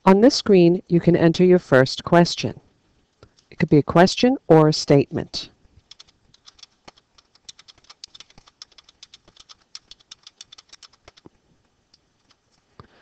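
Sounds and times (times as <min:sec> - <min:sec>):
typing on computer keyboard: 0:05.8 - 0:11.3.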